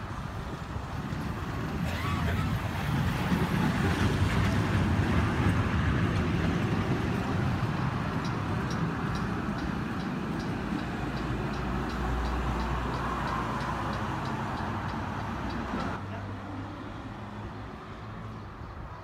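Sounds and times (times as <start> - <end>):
tram pulling away rumbling: 0.0 - 16.0
rapid high ticking: 6.8 - 15.6.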